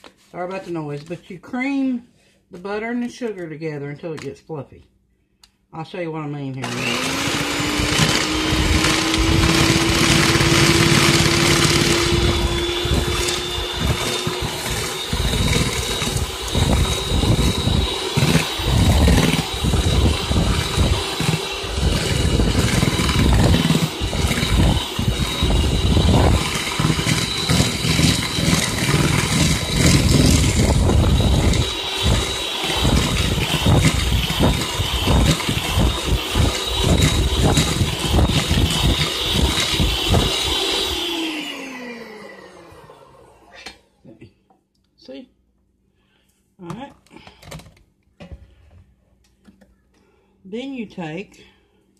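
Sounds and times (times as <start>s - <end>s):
beaters churning mixture in bowl: 6.6s - 42.8s
electric hand mixer whining: 6.6s - 43.8s.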